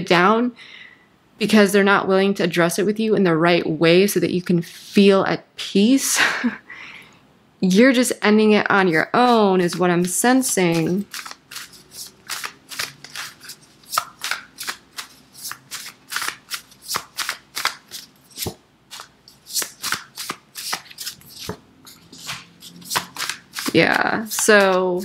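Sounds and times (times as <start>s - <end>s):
cards being shuffled: 9.1s - 25.0s.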